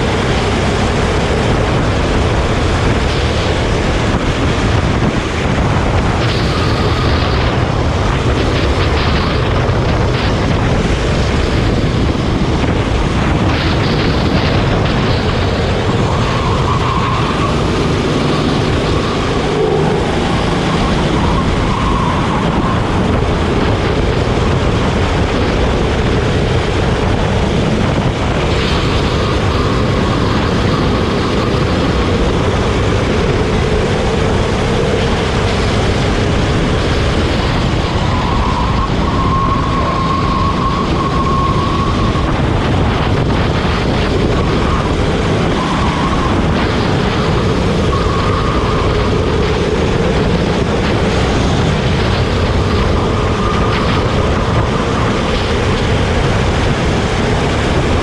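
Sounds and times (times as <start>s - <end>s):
continuous rushing noise: 0.0s - 58.0s
go-kart engine revving: 0.0s - 58.0s.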